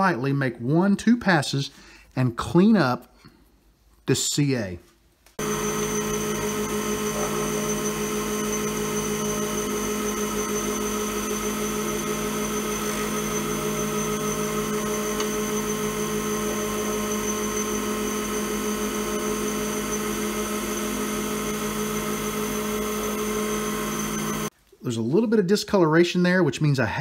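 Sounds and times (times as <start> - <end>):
lathe motor whine: 5.4 - 24.5
turning tool cutting resin: 5.4 - 24.5.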